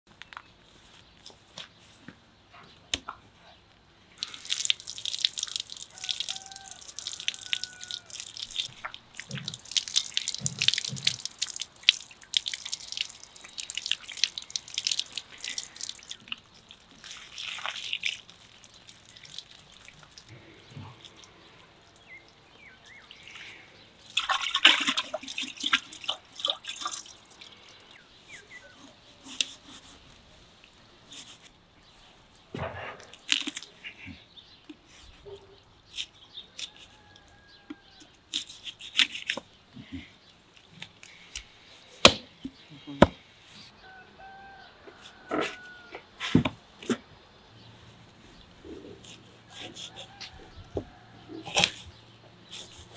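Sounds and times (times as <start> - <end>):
hose water splashing on meat: 4.2 - 23.3, 24.0 - 27.9.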